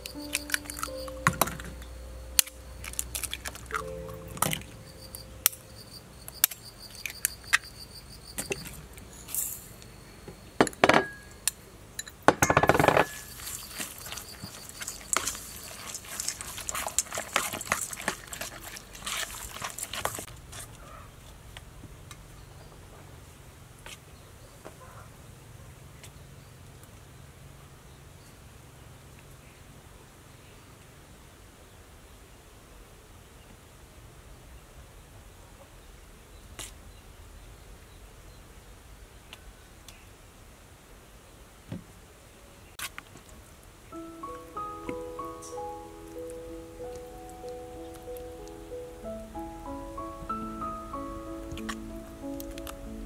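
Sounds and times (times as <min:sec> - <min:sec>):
faint insect chirring: 0:00.0 - 0:11.8, 0:13.0 - 0:17.6
metal spoon scraping steel bowl: 0:13.0 - 0:20.3.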